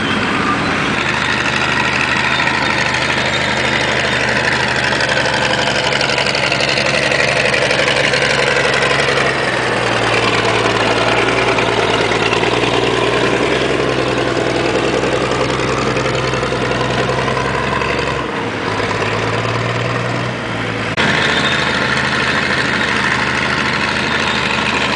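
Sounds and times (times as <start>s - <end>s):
diesel engine running: 0.0s - 24.9s.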